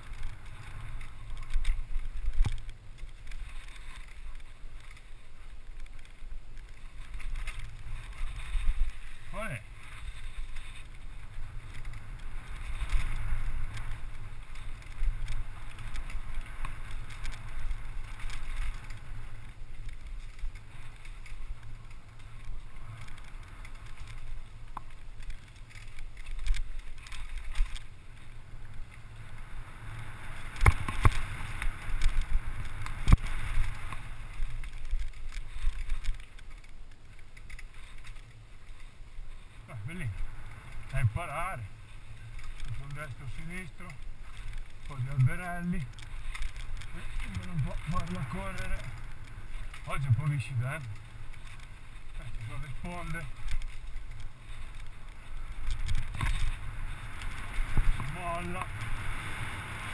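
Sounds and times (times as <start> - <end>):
bike rattling over rough ground: 0.0 - 59.9
wind rushing over microphone: 39.2 - 59.9.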